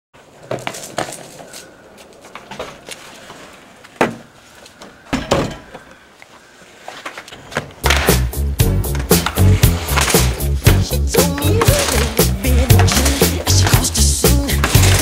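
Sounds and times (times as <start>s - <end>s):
loud music with heavy beat: 8.1s - 15.0s.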